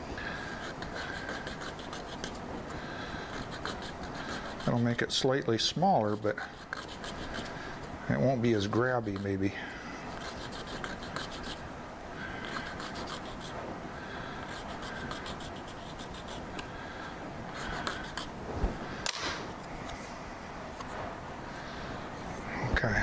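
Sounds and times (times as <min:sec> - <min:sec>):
hand file rasping on metal: 0:00.4 - 0:02.4, 0:03.3 - 0:05.0, 0:06.3 - 0:07.6, 0:10.1 - 0:11.6, 0:12.4 - 0:13.5, 0:14.5 - 0:16.5, 0:17.5 - 0:18.3.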